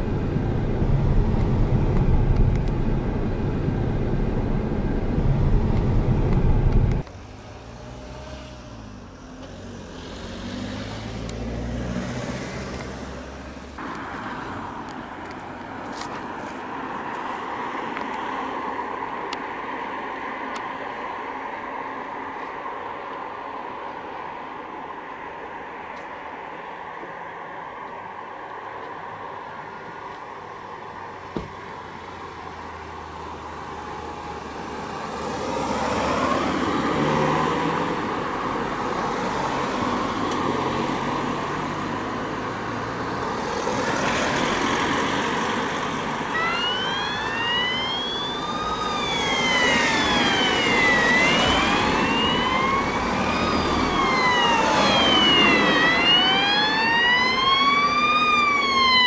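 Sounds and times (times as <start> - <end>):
road traffic going by: 0.0 - 59.0
fire engine sirens wailing: 43.8 - 59.0.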